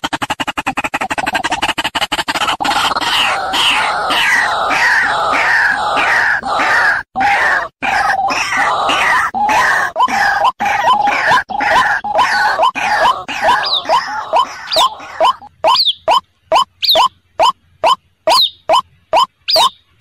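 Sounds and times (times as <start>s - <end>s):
waterhen harsh croaking calls: 0.7s - 19.8s.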